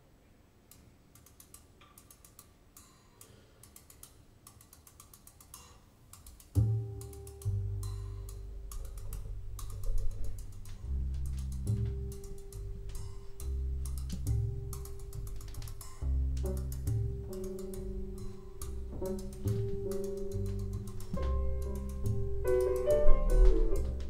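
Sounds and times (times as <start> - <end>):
soft drum ticks: 0.7 - 24.0
double bass notes: 6.5 - 24.0
jazz piano trio: 6.6 - 24.0.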